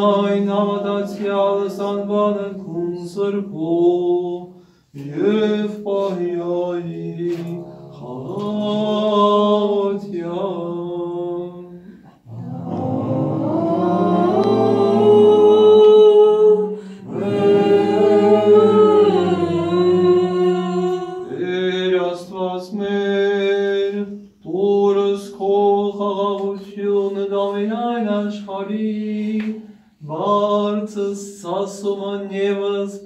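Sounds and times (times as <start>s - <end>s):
voices chanting long held notes: 0.0s - 3.0s, 5.0s - 10.0s, 12.0s - 22.1s
low vocal drone: 6.9s - 10.0s, 12.0s - 22.1s.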